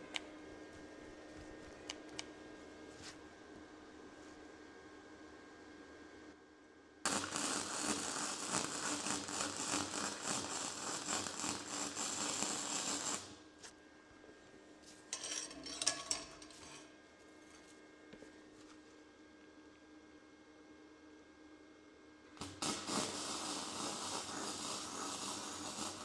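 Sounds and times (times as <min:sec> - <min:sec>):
welding arc crackling: 0:07.0 - 0:13.4, 0:22.4 - 0:26.0.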